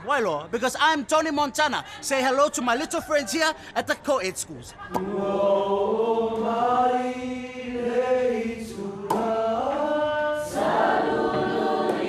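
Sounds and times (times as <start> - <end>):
group of voices singing chords: 4.9 - 12.0.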